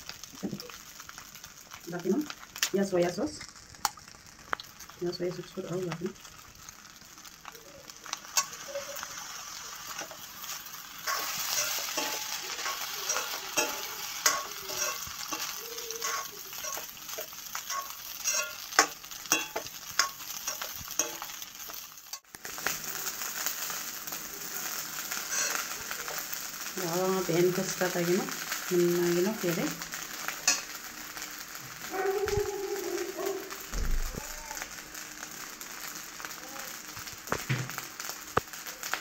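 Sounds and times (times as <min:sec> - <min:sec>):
rice sizzling in a wok: 0:00.0 - 0:39.0
metal spoon scraping wok: 0:08.3 - 0:22.2, 0:25.2 - 0:25.7, 0:30.4 - 0:30.8
spoon clinking against pan: 0:11.1 - 0:21.3.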